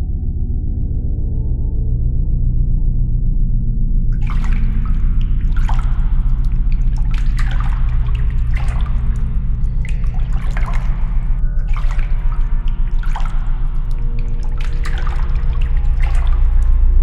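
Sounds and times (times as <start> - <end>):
low steady drone: 0.0 - 17.0
liquid pouring and splattering: 4.2 - 17.0.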